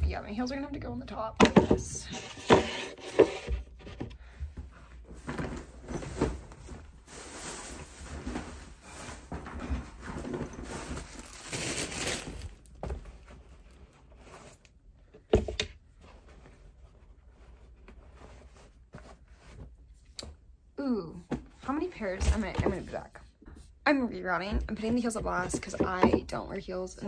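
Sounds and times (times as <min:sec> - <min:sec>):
bag rustling: 0:05.3 - 0:12.8.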